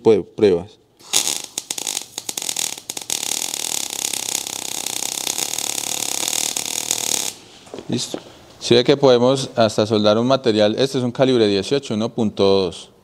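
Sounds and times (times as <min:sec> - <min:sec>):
welding arc crackling and popping: 0:01.0 - 0:07.5.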